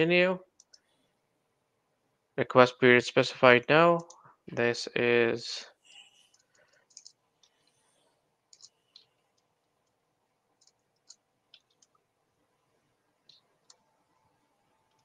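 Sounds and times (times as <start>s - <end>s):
computer keyboard typing: 0.6s - 0.9s, 4.0s - 4.2s, 6.3s - 7.6s, 8.5s - 10.0s, 10.6s - 12.0s.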